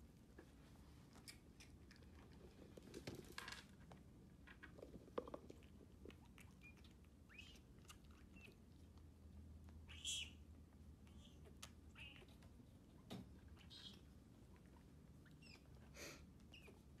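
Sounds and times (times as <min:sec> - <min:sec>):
animal high squeaks: 0:11.1 - 0:12.3, 0:13.6 - 0:14.0, 0:16.5 - 0:16.8.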